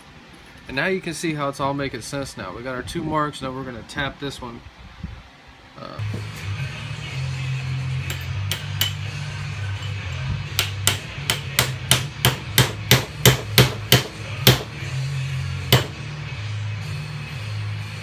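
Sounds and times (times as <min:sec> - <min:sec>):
hammer tapping metal: 0:08.0 - 0:09.2, 0:09.8 - 0:14.7, 0:15.7 - 0:16.0.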